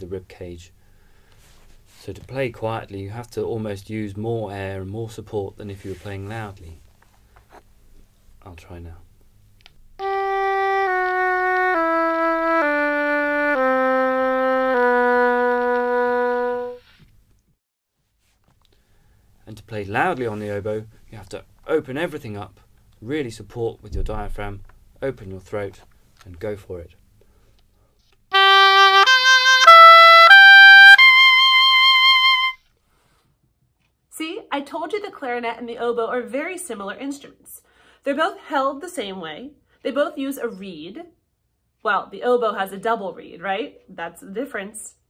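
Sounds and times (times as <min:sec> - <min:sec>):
oboe playing slow notes: 0:10.0 - 0:16.9, 0:28.3 - 0:32.6.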